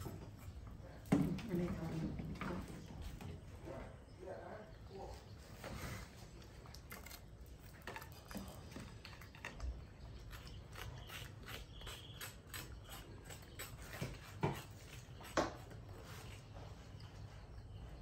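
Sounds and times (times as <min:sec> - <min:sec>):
spoon scraping coconut shell: 0:06.8 - 0:15.8.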